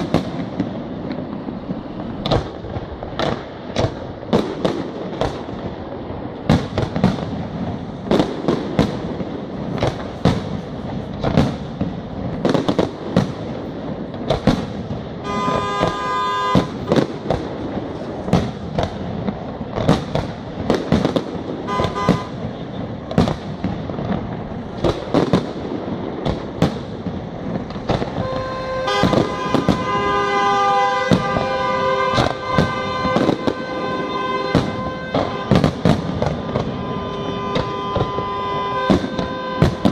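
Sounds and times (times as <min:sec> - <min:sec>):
firework shells bursting: 0:06.3 - 0:39.9
steady horn-like tones: 0:15.2 - 0:16.9, 0:21.7 - 0:22.8, 0:28.1 - 0:39.9.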